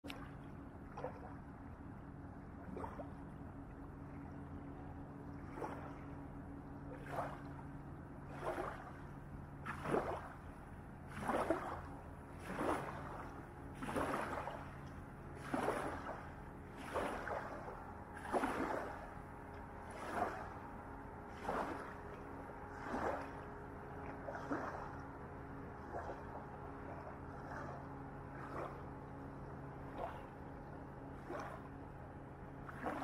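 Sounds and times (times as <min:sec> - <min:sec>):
distant boat engine hum: 0:00.0 - 0:33.0
small waves lapping on sand: 0:05.3 - 0:06.2, 0:06.9 - 0:07.6, 0:08.2 - 0:25.2, 0:25.8 - 0:28.9, 0:29.8 - 0:30.3, 0:31.2 - 0:31.9, 0:32.6 - 0:33.0.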